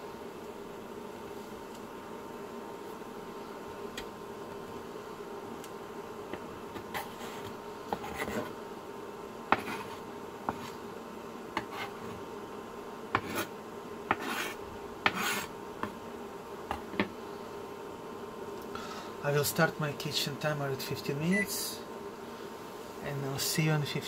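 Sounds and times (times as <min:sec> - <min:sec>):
knife scraping across board: 0:06.8 - 0:08.5, 0:09.5 - 0:10.8, 0:11.6 - 0:12.2, 0:13.1 - 0:13.5, 0:14.1 - 0:16.0.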